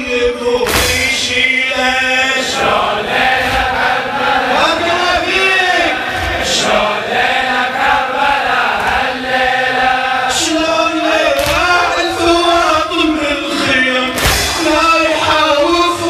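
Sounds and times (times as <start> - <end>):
men chanting in unison: 0.0 - 16.0
sharp strikes: 0.6 - 1.3, 14.1 - 15.0.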